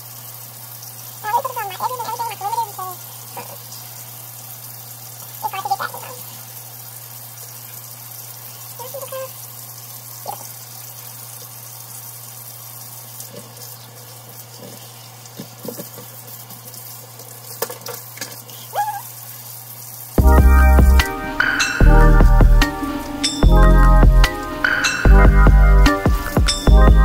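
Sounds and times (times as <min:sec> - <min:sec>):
hair being shampooed by hand: 0:00.0 - 0:26.7
loud music: 0:20.2 - 0:27.0.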